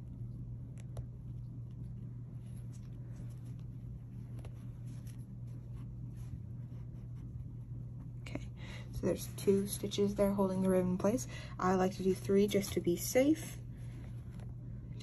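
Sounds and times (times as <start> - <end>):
steady low hum: 0.0 - 15.0
hands rustling fabric: 0.6 - 8.2, 12.5 - 14.7.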